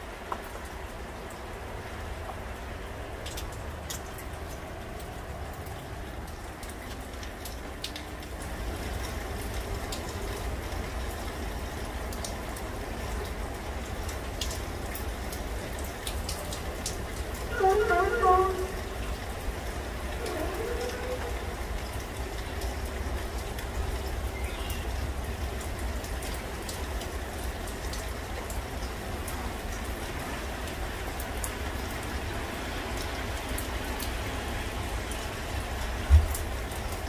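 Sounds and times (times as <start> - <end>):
rain pattering: 0.0 - 37.0
sharp raindrop hits: 35.9 - 37.0.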